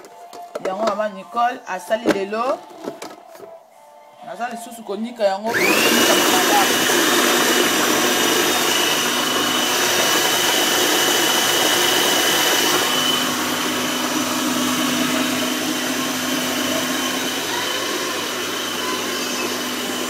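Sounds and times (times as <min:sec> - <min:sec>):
electric blender motor whine: 0:05.5 - 0:20.0.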